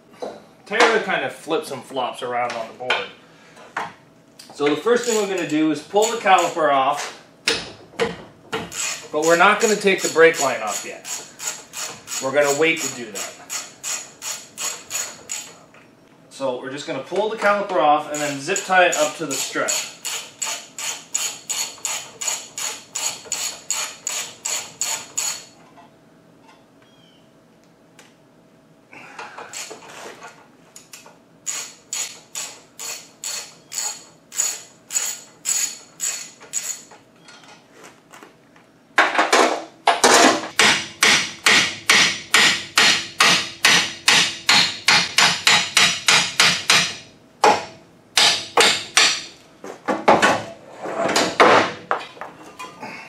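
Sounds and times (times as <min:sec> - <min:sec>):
hand tool clicking on metal: 0:18.1 - 0:25.4, 0:30.8 - 0:36.9.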